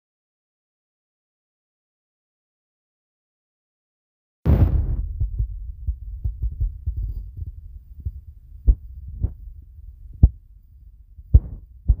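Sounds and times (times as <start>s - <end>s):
thumps on a microphone: 4.5s - 9.4s, 11.2s - 12.0s
low rumble: 4.5s - 12.0s.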